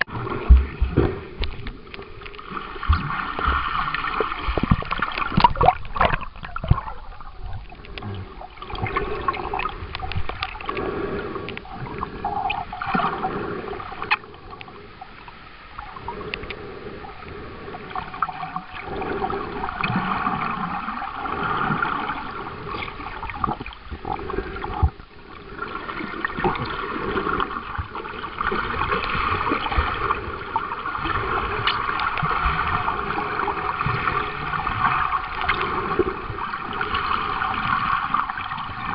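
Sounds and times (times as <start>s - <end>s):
muffled underwater water sloshing: 0.0s - 38.9s
splashes of bubbles: 2.8s - 7.8s.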